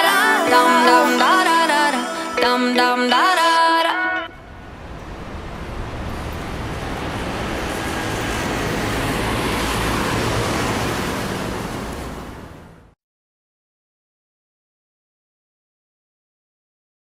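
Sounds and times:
electronic whoosh: 4.2s - 11.8s.

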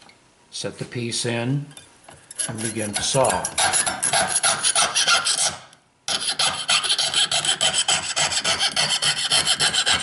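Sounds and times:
saw rasping through metal: 2.3s - 10.0s.

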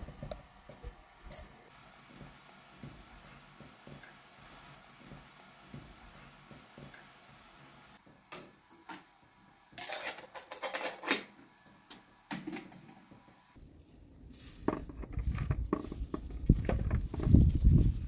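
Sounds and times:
teapot lid clinking and rattling: 9.8s - 11.3s
rustling and handling noise: 13.6s - 18.0s.

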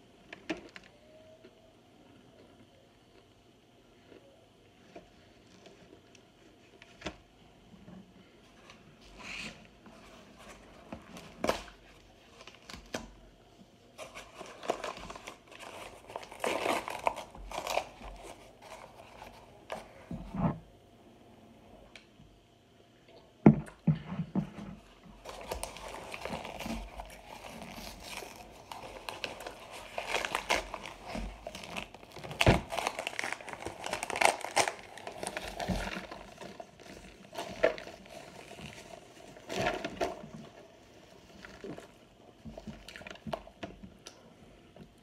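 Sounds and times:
cardboard packaging crinkling: 14.0s - 20.0s, 25.2s - 43.7s.

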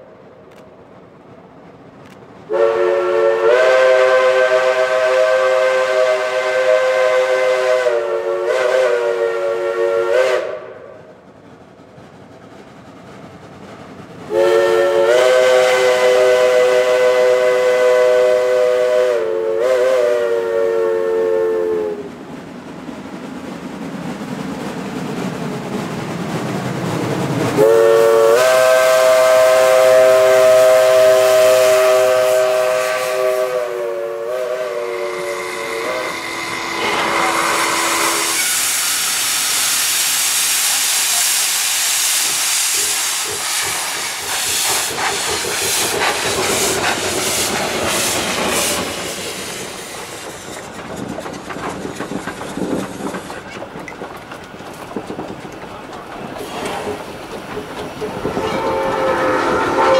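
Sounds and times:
loud steam hiss: 2.5s - 10.8s, 14.2s - 22.2s, 27.2s - 59.9s
steam whistle chord: 2.5s - 10.9s, 14.3s - 22.0s, 27.6s - 39.7s, 58.3s - 59.9s
locomotive exhaust chuffs and clanks: 41.8s - 59.9s.

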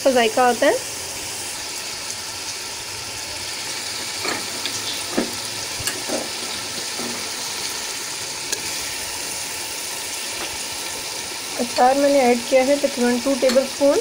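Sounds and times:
food sizzling in a pot: 0.0s - 14.0s
scraping in a pot: 4.1s - 7.8s.

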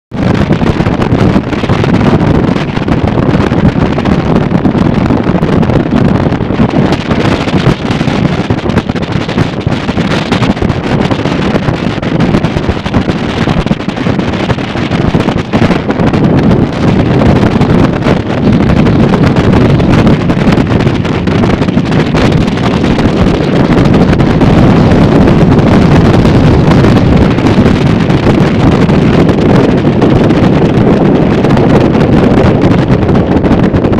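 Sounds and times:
motorboat running: 0.1s - 33.9s
wind buffeting microphone: 0.1s - 33.9s.

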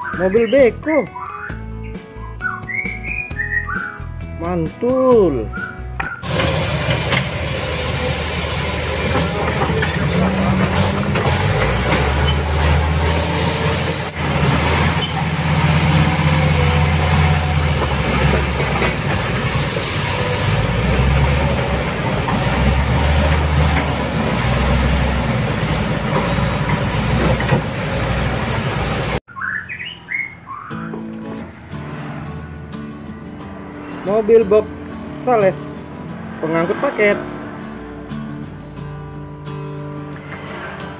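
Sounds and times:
diesel engines rumbling: 0.0s - 40.9s
steel tracks clanking: 6.2s - 29.2s.

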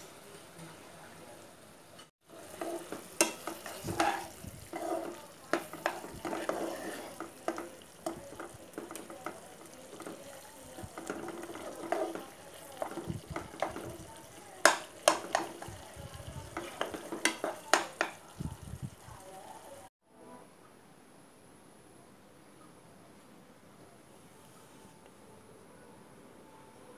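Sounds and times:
gravy sizzling: 0.0s - 19.9s
spatula scraping a pan: 2.3s - 18.2s.

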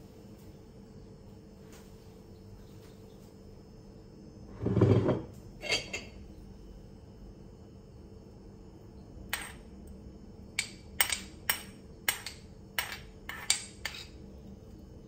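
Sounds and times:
metal spoon clinking on ceramic dish: 5.6s - 6.1s, 10.6s - 14.2s.

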